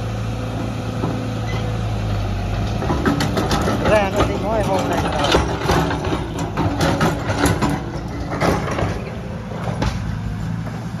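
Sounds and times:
diesel engine idling: 0:00.0 - 0:11.0
knocks and clanks: 0:02.5 - 0:10.2.

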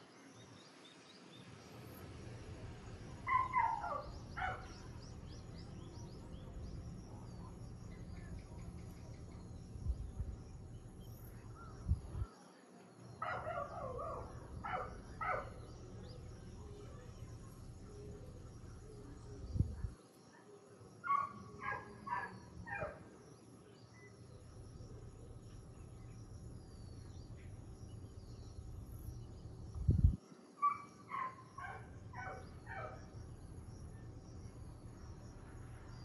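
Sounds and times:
small birds chirping: 0:00.0 - 0:36.0
dog barking: 0:03.3 - 0:04.8, 0:13.2 - 0:15.6, 0:21.1 - 0:23.0, 0:30.6 - 0:33.0
wind rumbling: 0:28.6 - 0:30.2.

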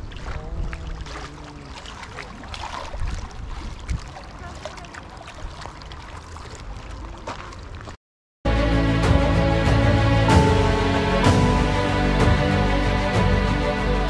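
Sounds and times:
small waves lapping: 0:00.0 - 0:08.0
wind on microphone: 0:02.8 - 0:04.3.

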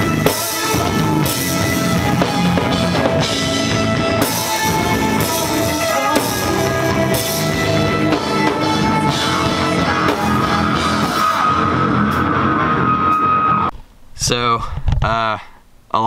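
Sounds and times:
distorted electric guitars: 0:00.0 - 0:13.7
bass guitar: 0:00.0 - 0:13.8
drum kit: 0:00.0 - 0:13.8
screamed vocals: 0:08.7 - 0:13.7.

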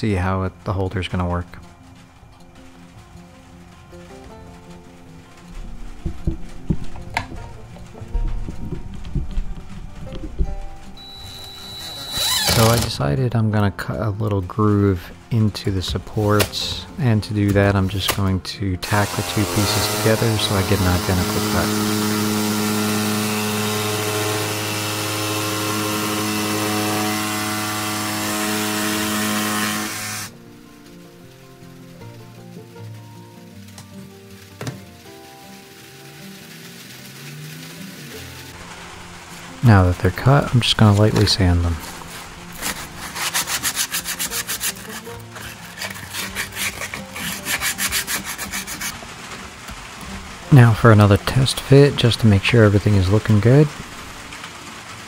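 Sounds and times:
power tool cutting wood: 0:11.0 - 0:13.0, 0:18.8 - 0:30.4, 0:40.9 - 0:48.9
sandpaper scratching on wood: 0:18.9 - 0:30.3, 0:41.8 - 0:48.9.

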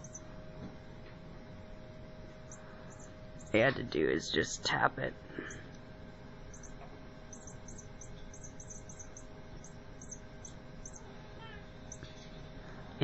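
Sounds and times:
high-pitched chirping: 0:00.0 - 0:00.4, 0:02.4 - 0:03.8, 0:06.5 - 0:12.2
faint steady hum: 0:00.0 - 0:13.0.

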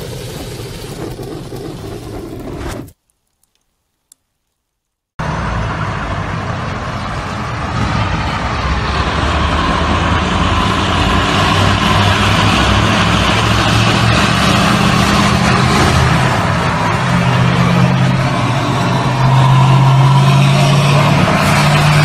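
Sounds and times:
street traffic rumbling: 0:05.2 - 0:22.0.

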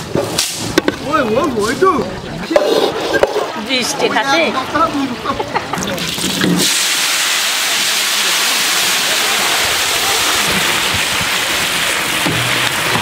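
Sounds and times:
food sizzling in hot oil: 0:06.0 - 0:13.0.

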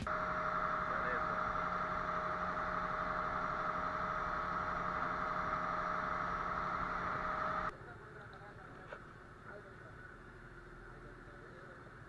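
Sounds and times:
boat engine drone: 0:00.0 - 0:07.7
high whine: 0:00.0 - 0:07.7.

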